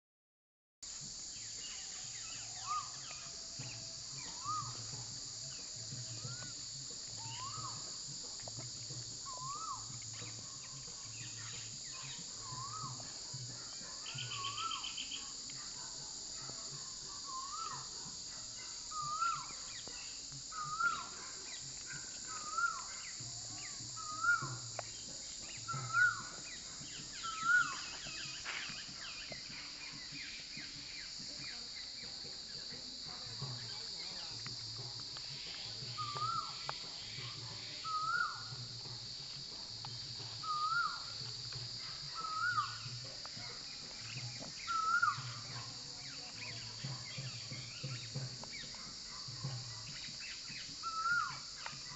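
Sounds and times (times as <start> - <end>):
insect chorus: 0.8 - 51.9
bird whistling: 4.2 - 4.8, 9.3 - 9.8, 20.5 - 21.3, 21.9 - 23.0, 25.8 - 26.3, 27.0 - 28.4, 40.4 - 41.0, 44.7 - 45.4.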